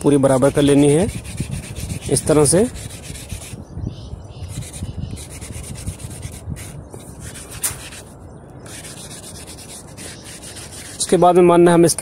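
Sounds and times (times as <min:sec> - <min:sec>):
sandpaper rasping on wood: 0:00.4 - 0:03.6, 0:04.5 - 0:08.1, 0:08.7 - 0:11.3.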